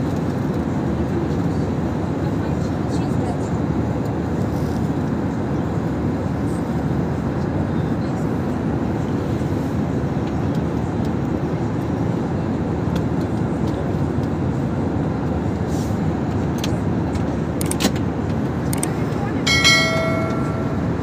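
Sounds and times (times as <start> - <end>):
airliner cabin engine roar: 0.0 - 21.0.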